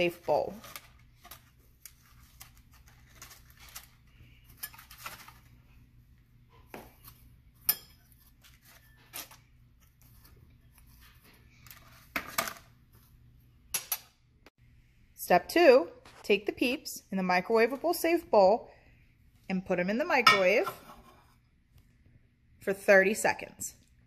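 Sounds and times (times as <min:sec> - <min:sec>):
rustling: 0:00.3 - 0:05.8.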